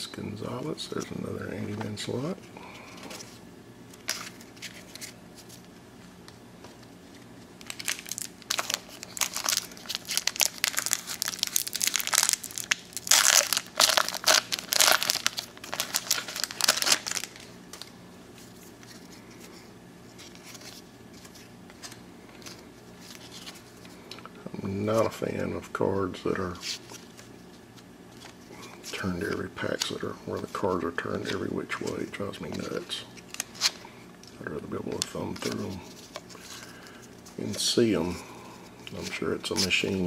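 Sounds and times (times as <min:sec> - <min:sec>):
wrapper crinkling and tearing: 0:07.6 - 0:17.9.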